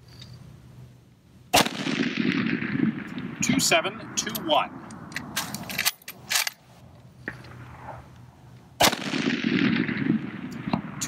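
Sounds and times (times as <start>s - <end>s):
rifle gunshot: 1.5s - 4.3s, 7.5s - 8.0s, 8.8s - 11.0s.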